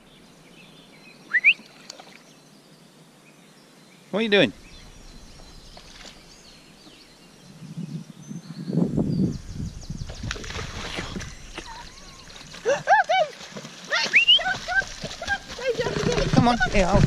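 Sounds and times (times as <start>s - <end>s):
low rumbling noise: 4.4s - 12.4s
dog splashing in water: 10.1s - 17.0s.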